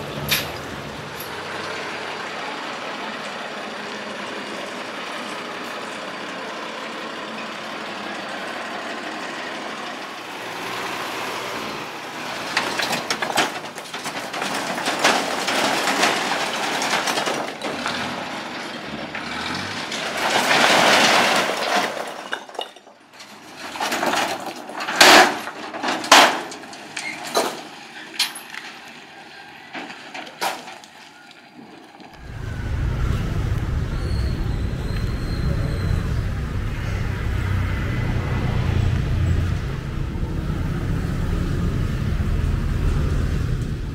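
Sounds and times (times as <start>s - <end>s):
low engine rumble: 0.0s - 20.6s, 31.9s - 43.9s
truck engine running: 0.0s - 22.1s, 32.1s - 43.9s
rocks clattering out of truck bed: 12.3s - 28.9s, 29.7s - 32.7s.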